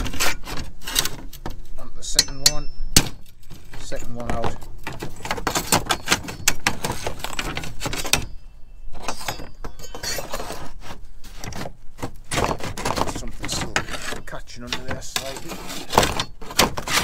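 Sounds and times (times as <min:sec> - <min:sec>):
roof slate scraping: 0:00.0 - 0:01.9, 0:03.2 - 0:17.0
metal tool clinking: 0:02.0 - 0:04.2, 0:05.2 - 0:10.6.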